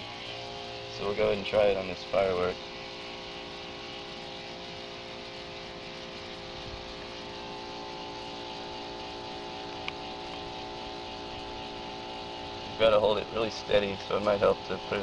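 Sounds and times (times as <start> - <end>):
steady hum of held tones: 0.0 - 15.0.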